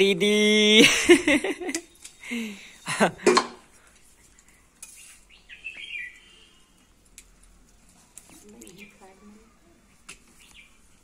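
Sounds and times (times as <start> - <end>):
metal tongs scraping on griddle: 4.8 - 5.2.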